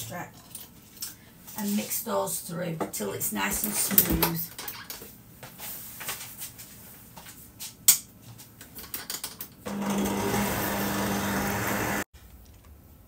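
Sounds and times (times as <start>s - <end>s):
mixer motor humming: 9.7s - 12.1s.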